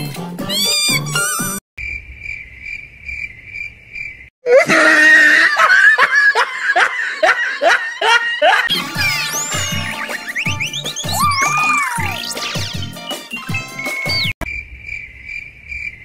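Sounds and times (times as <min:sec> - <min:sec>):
cricket chirping: 0:01.8 - 0:04.3, 0:14.4 - 0:16.0
loud laughter: 0:04.5 - 0:12.2.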